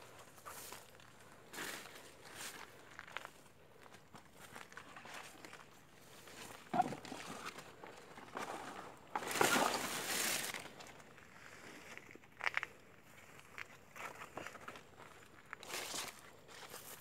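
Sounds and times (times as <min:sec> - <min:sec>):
footsteps on stony forest floor: 0:00.0 - 0:17.0
leaves rustling: 0:08.4 - 0:10.9.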